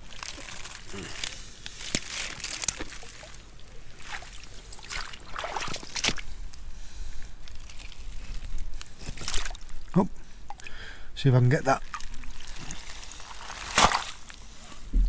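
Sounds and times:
water sloshing and trickling: 0.0 - 10.8, 11.7 - 15.0
boots splashing through puddles: 4.0 - 6.2, 11.9 - 14.2.

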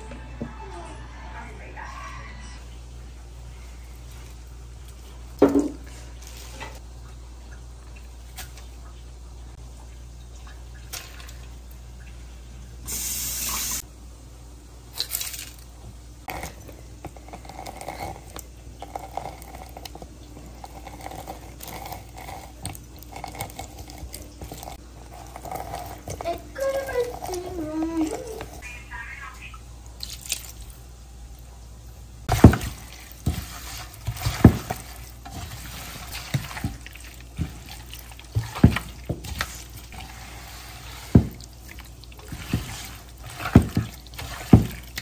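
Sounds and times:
tap running: 15.8 - 28.6, 32.3 - 45.0.

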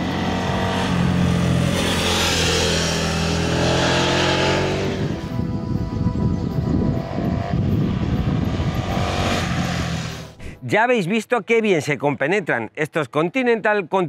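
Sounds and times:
motorcycle engine accelerating: 0.0 - 10.4
background music: 0.0 - 14.0.

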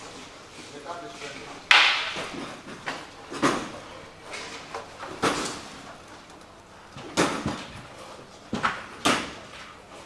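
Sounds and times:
faint background noise: 0.0 - 10.0
sharp knocks with echo: 1.7 - 2.4.

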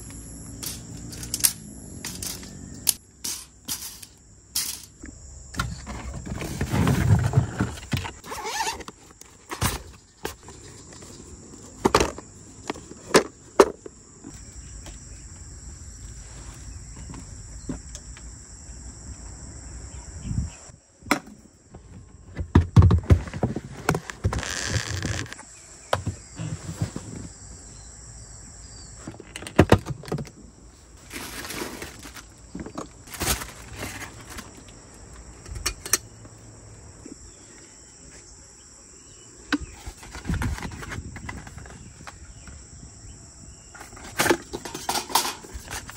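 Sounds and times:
insects chirring: 0.0 - 45.9
handling knocks and rustles: 0.6 - 14.4, 31.0 - 34.8, 39.5 - 42.6, 43.7 - 45.9.

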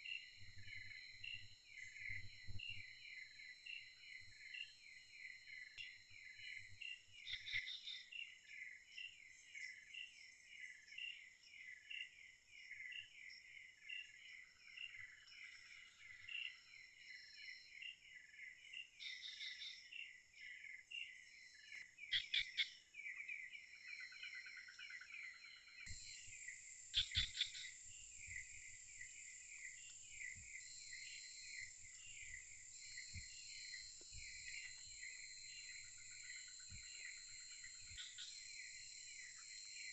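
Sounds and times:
rhythmic insect chirping: 0.0 - 12.0, 12.6 - 22.8, 23.7 - 39.9
high-pitched insect drones: 25.4 - 39.9.

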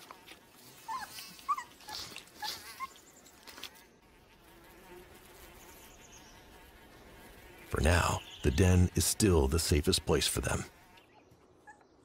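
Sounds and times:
faint steady buzz: 0.0 - 11.4
wolves squeaking: 0.8 - 3.0.

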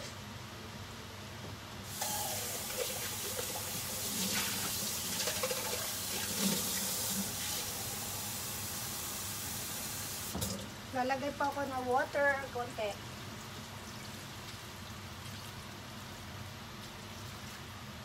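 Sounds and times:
tap water running: 1.9 - 10.8.

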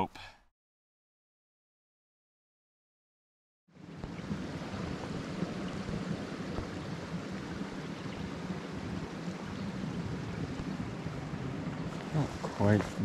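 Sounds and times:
creek water rushing: 3.8 - 13.0.

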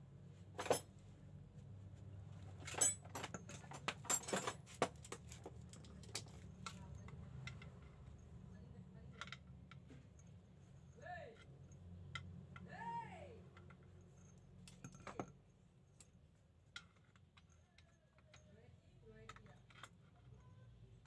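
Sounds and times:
metal clinking and knocking: 0.6 - 0.9, 2.5 - 8.4, 13.6 - 20.5.

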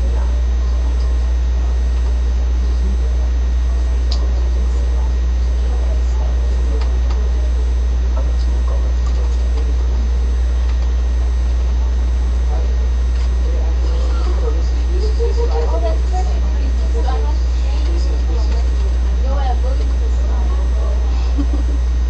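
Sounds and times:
loud low hum: 0.0 - 22.0
women conversing: 13.8 - 21.7.

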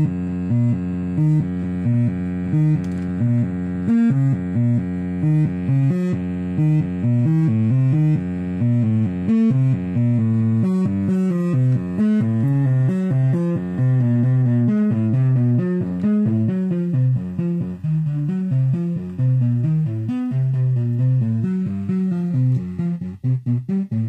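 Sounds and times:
distorted synth sequence: 0.0 - 24.0.

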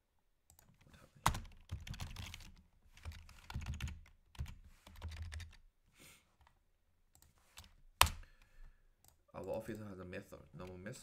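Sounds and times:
typing on computer keyboard: 1.3 - 5.6.

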